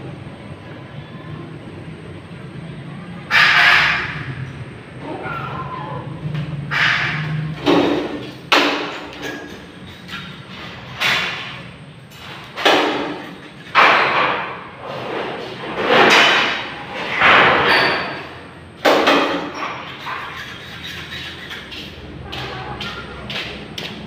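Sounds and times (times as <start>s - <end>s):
knocks on thin sheet metal: 6.8s - 9.3s, 12.6s - 14.6s.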